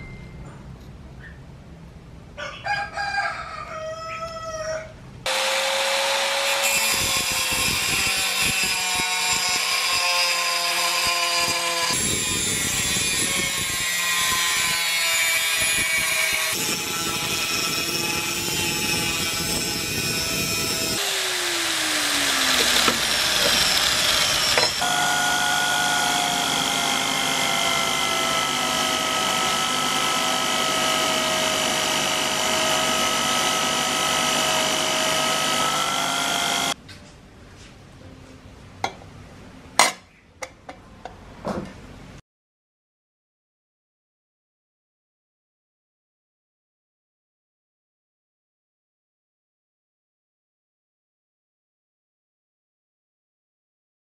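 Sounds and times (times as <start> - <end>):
rooster crowing: 2.4 - 5.0
electric drill whining: 5.3 - 10.0, 15.3 - 36.8
angle grinder cutting sheet steel: 5.3 - 36.8.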